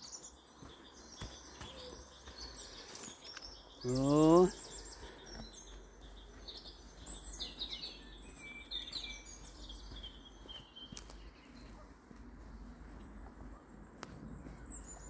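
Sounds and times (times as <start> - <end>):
songbirds chirping and trilling: 0.0 - 15.0.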